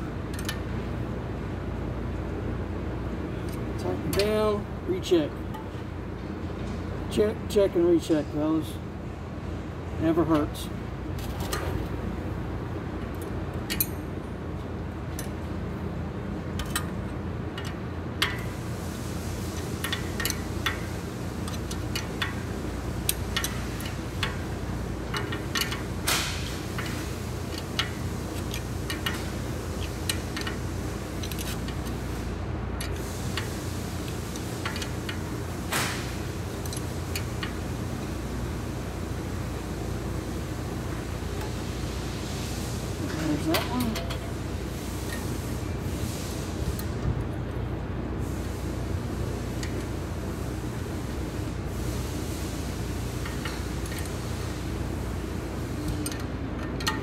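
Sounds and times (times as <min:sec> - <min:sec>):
steady low hum: 0:00.0 - 0:57.0
wrench clicking on metal bolts: 0:00.3 - 0:00.6, 0:03.5 - 0:04.6, 0:13.1 - 0:14.0, 0:16.5 - 0:18.6, 0:19.5 - 0:32.0, 0:32.8 - 0:37.7, 0:53.1 - 0:54.7, 0:55.8 - 0:57.0.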